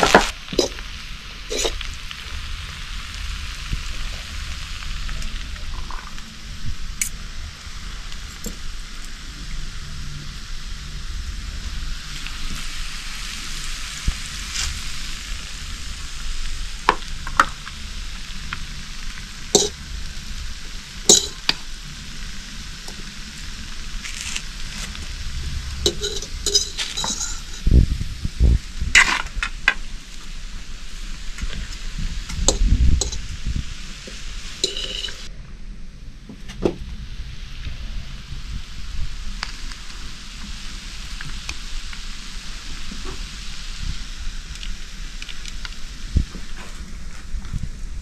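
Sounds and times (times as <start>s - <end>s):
steady hiss: 0.0s - 48.0s
fork scraping metal pan: 0.6s - 0.8s, 1.5s - 1.8s, 25.8s - 27.7s, 34.6s - 35.2s.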